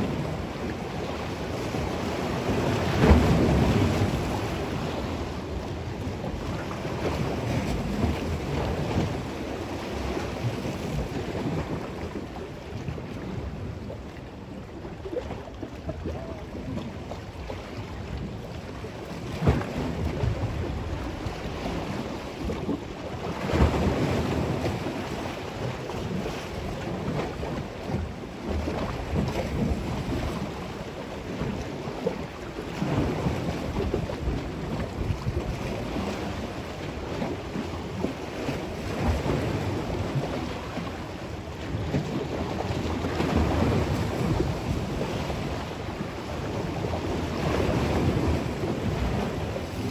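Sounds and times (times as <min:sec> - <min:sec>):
waves splashing and lapping: 0:00.0 - 0:49.9
wind buffeting microphone: 0:26.1 - 0:49.9.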